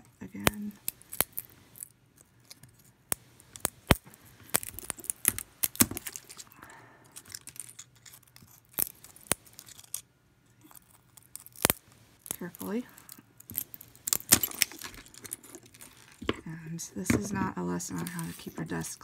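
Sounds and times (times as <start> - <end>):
pruners cracking a pine cone: 3.1 - 6.6.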